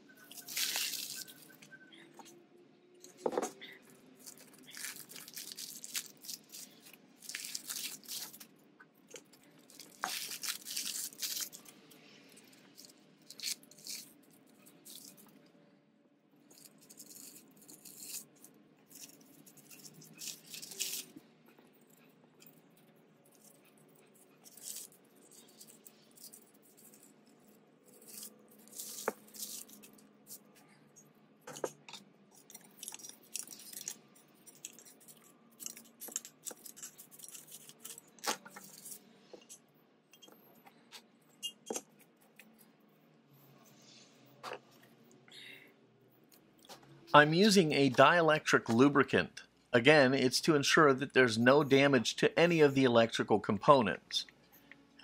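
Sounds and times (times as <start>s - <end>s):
paper crinkling: 0.2s - 1.6s, 4.2s - 8.5s, 9.1s - 11.7s, 16.6s - 21.1s, 27.9s - 30.4s.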